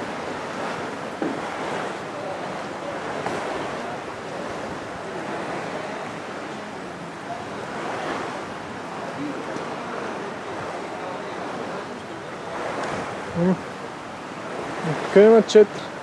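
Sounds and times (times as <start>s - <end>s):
small waves lapping in shallow water: 0.0s - 16.0s.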